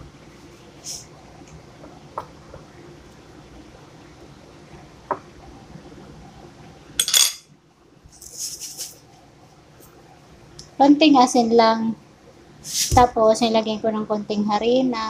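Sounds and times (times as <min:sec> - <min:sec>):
fork clinking on ceramic plate: 0:07.0 - 0:07.4
short high hiss: 0:12.6 - 0:13.0.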